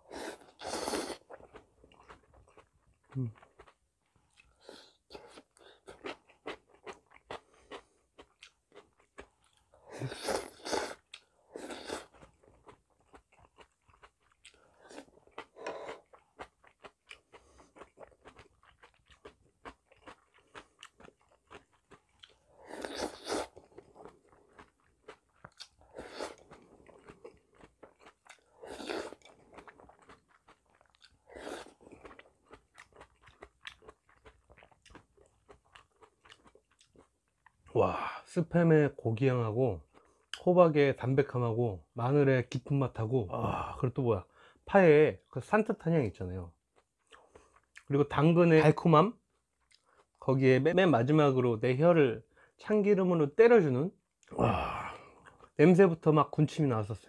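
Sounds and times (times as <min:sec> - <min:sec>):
slurping noodles: 0:00.0 - 0:01.3, 0:10.0 - 0:12.1, 0:22.3 - 0:23.7, 0:28.4 - 0:29.7, 0:31.2 - 0:32.0
wet chewing and mouth clicks: 0:00.4 - 0:37.8, 0:46.7 - 0:48.0, 0:49.3 - 0:50.2, 0:55.0 - 0:55.6.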